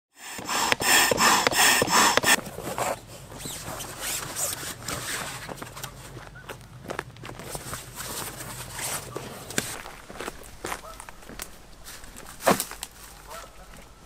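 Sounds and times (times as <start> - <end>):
rubber mat scraping boat tubes: 0.1 - 6.5, 7.3 - 9.9
rubber mat rustling and tapping: 0.2 - 10.4, 12.1 - 13.4.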